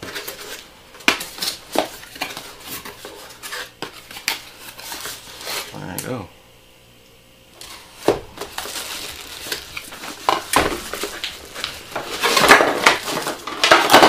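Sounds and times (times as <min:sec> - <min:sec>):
plastic packaging crinkling: 0:07.6 - 0:14.0.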